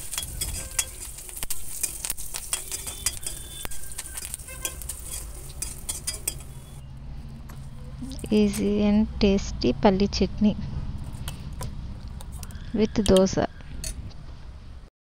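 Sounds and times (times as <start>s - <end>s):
hot oil sizzling: 0.0s - 6.8s
metal spoon scraping a pan: 0.0s - 6.8s.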